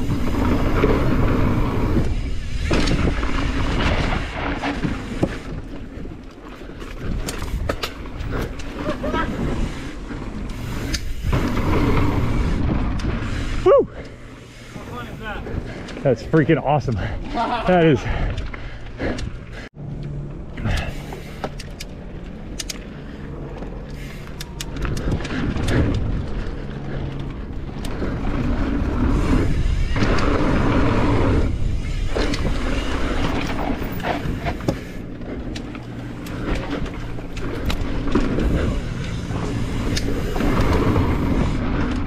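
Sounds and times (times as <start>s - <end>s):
mountain bike on dirt trail: 0.0s - 42.0s.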